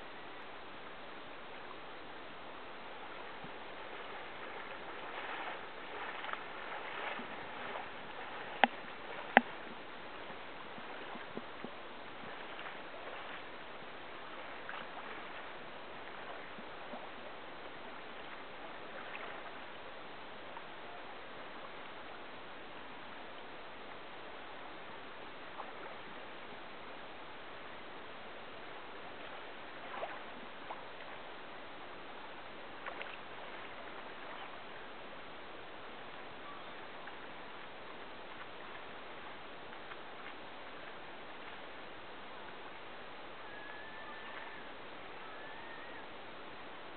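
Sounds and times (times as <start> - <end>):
river water rushing: 0.0 - 46.9
water sloshing and splashing: 3.0 - 17.4, 18.0 - 19.7, 29.1 - 31.4, 32.6 - 34.9.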